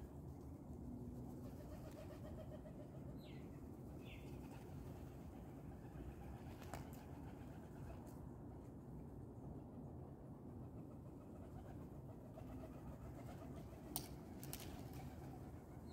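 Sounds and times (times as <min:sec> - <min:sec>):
pigeon wings flapping: 0:06.4 - 0:07.4, 0:13.2 - 0:15.4.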